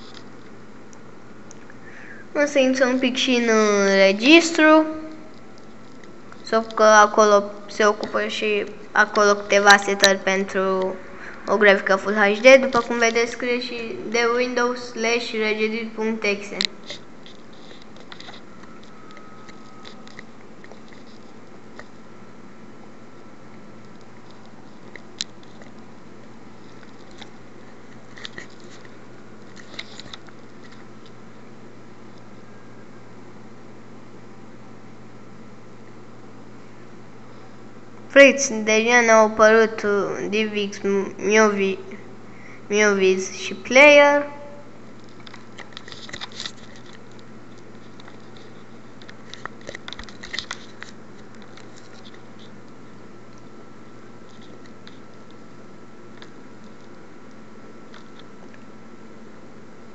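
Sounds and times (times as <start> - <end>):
microphone hiss and hum: 0.0 - 59.9
small clicks and crackles: 26.6 - 31.2, 44.9 - 53.5, 54.2 - 58.7.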